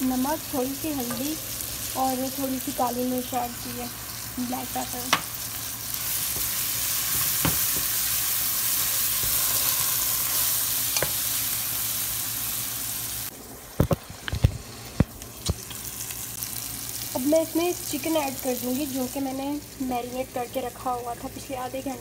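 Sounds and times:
vegetables sizzling in oil: 0.0s - 22.0s
wooden spatula knocking pan: 7.1s - 8.0s.

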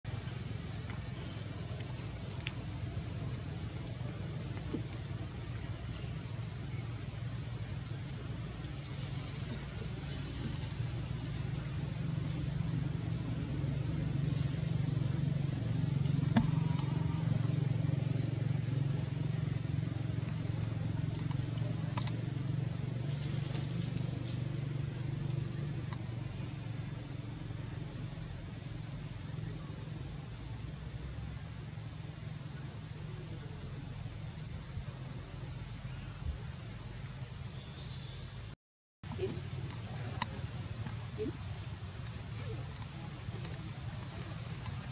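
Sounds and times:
insects droning: 0.0s - 44.9s
low hum: 0.1s - 27.8s
faint clicks: 21.2s - 22.2s.

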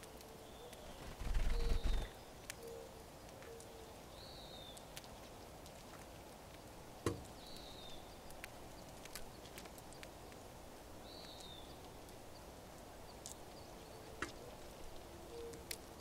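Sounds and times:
finches chirping: 0.5s - 2.8s
light clicks of seeds cracking: 4.6s - 10.5s, 11.1s - 12.2s, 12.8s - 16.0s.

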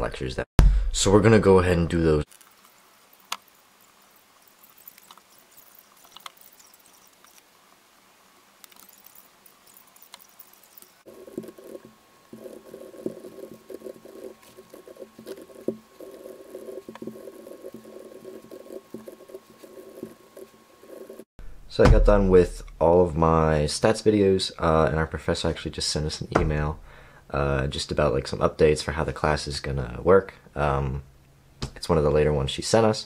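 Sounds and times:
pen writing on paper: 11.1s - 21.3s.

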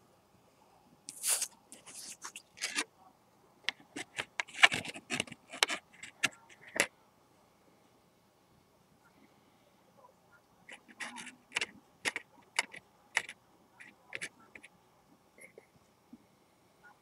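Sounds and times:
card scraping and rustling: 1.1s - 2.9s, 3.7s - 6.9s, 10.7s - 14.7s
card clicking on card: 11.0s - 13.4s.

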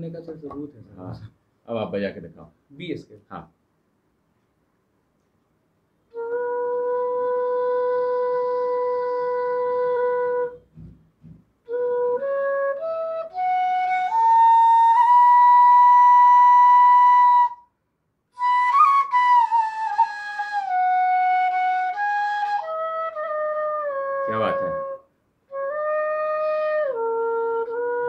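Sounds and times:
bamboo flute melody: 6.1s - 10.9s, 11.6s - 17.7s, 18.3s - 28.0s.

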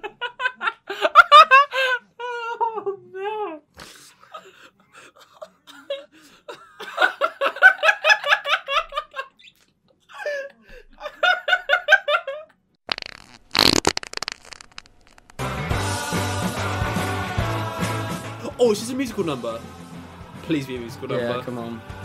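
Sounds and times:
men laughing hard: 0.0s - 3.1s, 5.0s - 9.3s, 10.1s - 12.5s.

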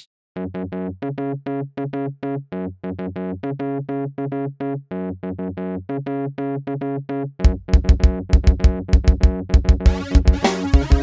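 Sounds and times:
bass line: 7.4s - 11.0s
keyboard chords: 9.8s - 11.0s.

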